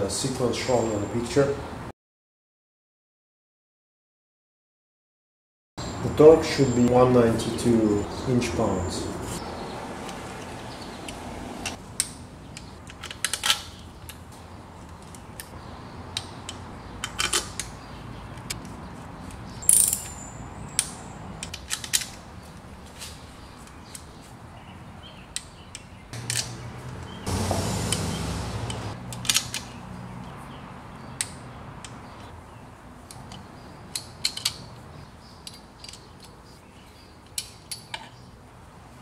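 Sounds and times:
metal tools clicking and tapping: 35.4s - 36.4s.

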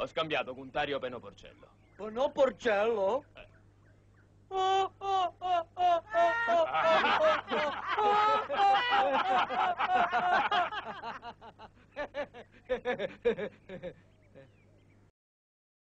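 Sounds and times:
people laughing loudly: 4.5s - 14.5s.

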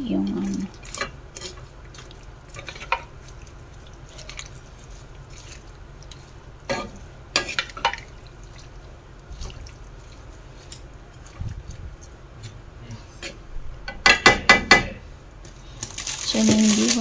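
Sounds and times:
steady low hum: 0.0s - 17.0s
spatula scraping in a wok: 0.8s - 8.1s
spatula knocking against pan: 13.9s - 15.0s.

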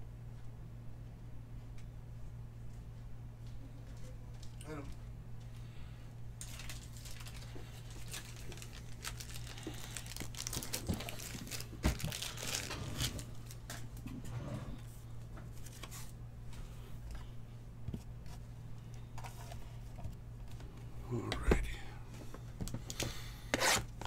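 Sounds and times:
plastic sleeves crinkling: 6.4s - 14.0s.

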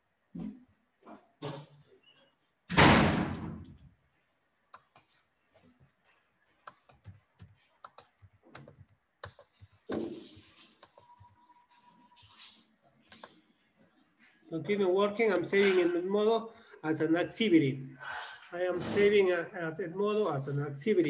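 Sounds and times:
loud thud: 2.7s - 3.7s
keyboard typing and clicking: 6.6s - 13.4s.

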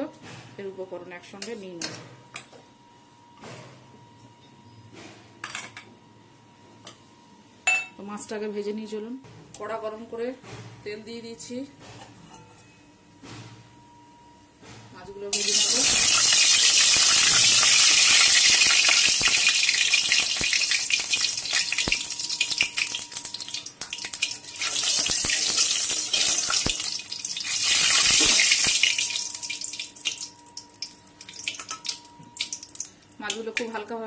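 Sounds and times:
fish sizzling in hot oil: 15.3s - 33.5s.

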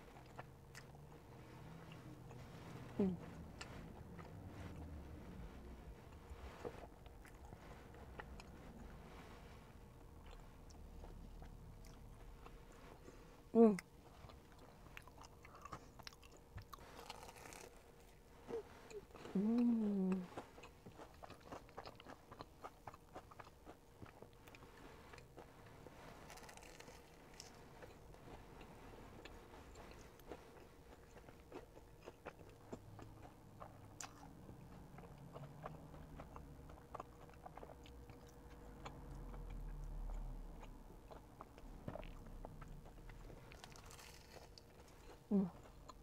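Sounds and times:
chewing and crunching: 0.0s - 46.0s
low rumble: 0.1s - 13.1s.

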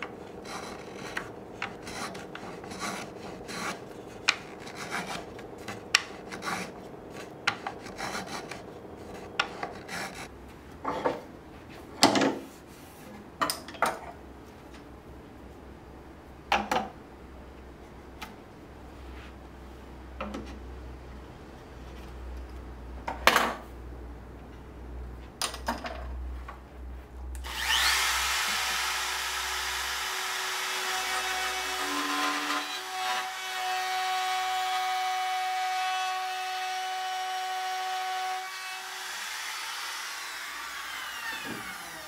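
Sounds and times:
sandpaper sanding wood: 0.5s - 5.2s, 7.8s - 10.3s.

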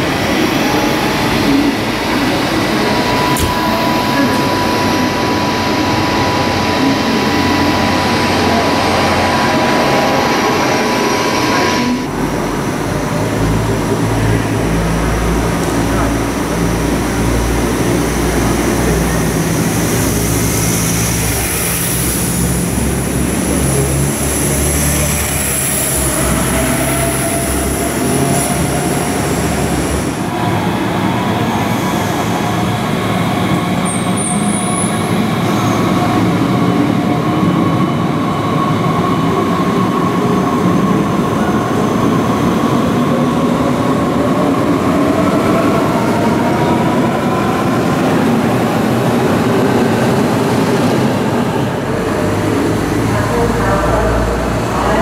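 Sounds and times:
diesel railcar engine drone: 0.0s - 55.0s
train whine: 0.0s - 55.0s
high brake squeal: 33.8s - 36.0s.

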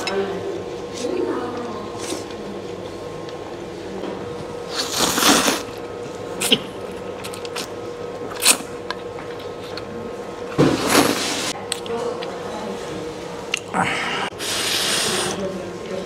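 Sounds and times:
man slurping noodles: 4.7s - 5.8s, 13.8s - 15.4s.

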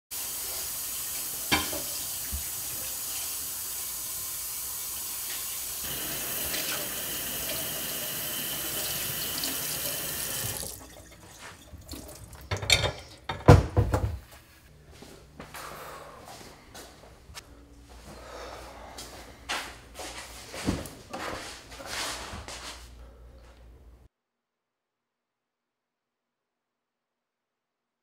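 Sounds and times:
faucet running into steel sink: 0.2s - 12.9s.

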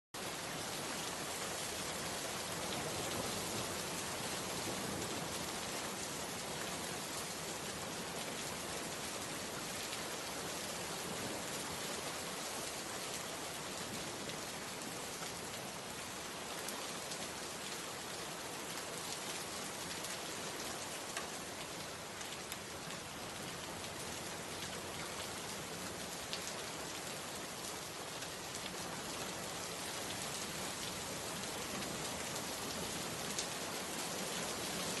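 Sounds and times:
rain-like hiss: 0.2s - 35.0s.

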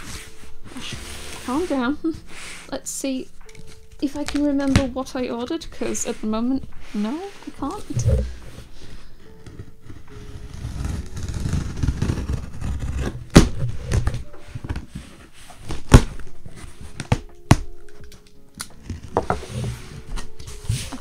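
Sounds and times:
cardboard scraping and rubbing: 0.0s - 2.7s, 5.8s - 17.3s, 18.8s - 21.0s.

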